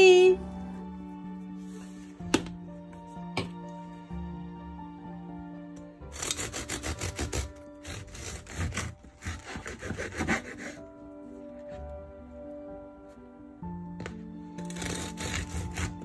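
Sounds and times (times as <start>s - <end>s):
background music: 0.0s - 16.0s
knife sawing through bread: 6.1s - 10.9s, 14.6s - 16.0s.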